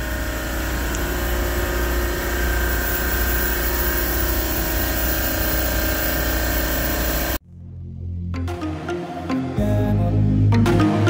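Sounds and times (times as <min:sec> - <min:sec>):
refrigeration compressor humming: 0:00.0 - 0:07.7.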